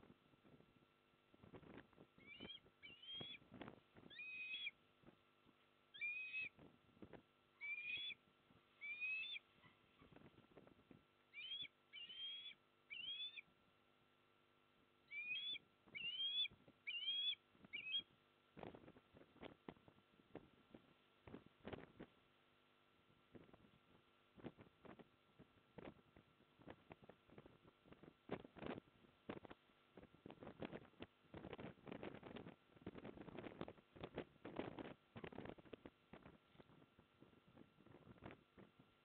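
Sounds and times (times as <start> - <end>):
osprey calling: 2.2 - 3.4, 4.0 - 4.8, 5.9 - 6.6, 7.6 - 8.2, 8.8 - 10.2, 11.3 - 13.5, 15.1 - 18.1.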